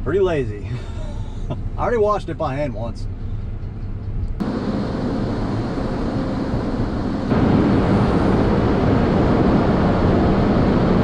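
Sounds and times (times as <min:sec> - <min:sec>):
car wash machinery rushing: 0:04.4 - 0:11.0.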